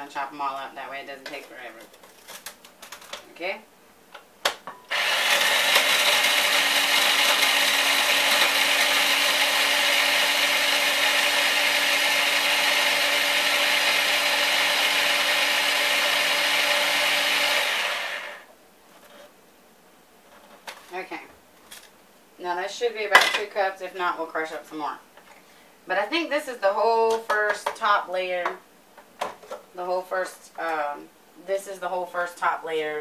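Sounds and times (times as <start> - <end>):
electric food chopper grinding: 4.9 - 18.5.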